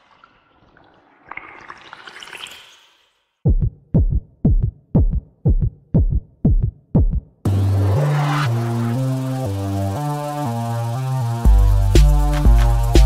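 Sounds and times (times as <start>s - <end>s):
drum machine kick beats: 3.4s - 7.5s, 11.4s - 13.0s
electronic music: 7.5s - 13.0s
rising swell sting: 7.5s - 13.0s.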